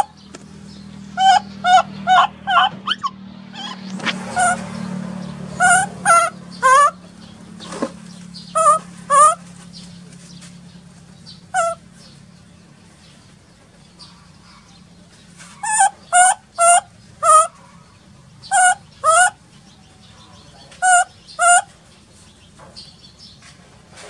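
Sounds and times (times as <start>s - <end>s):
baby monkey crying: 1.1s - 4.7s, 5.5s - 7.0s, 8.5s - 9.4s, 11.5s - 11.9s, 15.6s - 19.4s, 20.8s - 21.7s.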